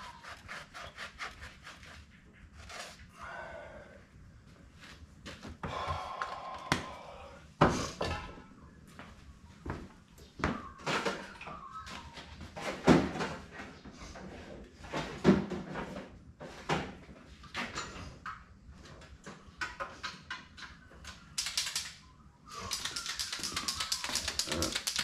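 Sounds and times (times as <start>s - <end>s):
paint marker ball rattling: 22.6s - 25.0s.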